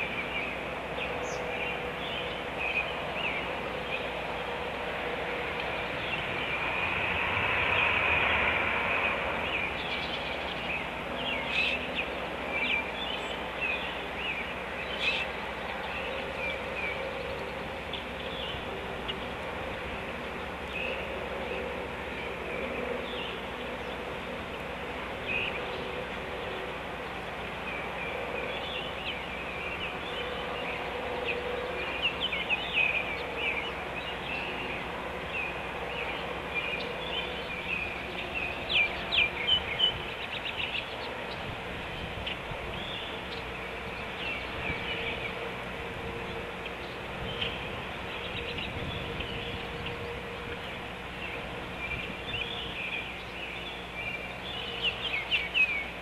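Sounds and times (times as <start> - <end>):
low drone: 0.0 - 56.0.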